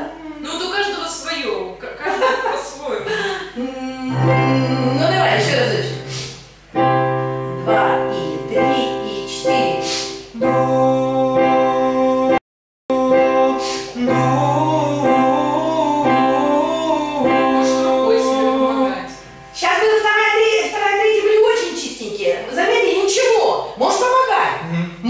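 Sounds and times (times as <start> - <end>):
person singing vocal exercise: 3.1 - 6.5, 7.8 - 19.3, 24.6 - 25.0
piano chords: 4.0 - 20.5.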